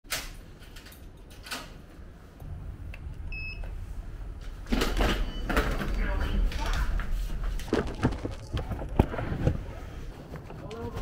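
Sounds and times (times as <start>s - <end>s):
low rumble: 2.1s - 9.8s
short electronic beep: 3.3s - 3.7s
clattering and rustling handling: 4.7s - 11.0s.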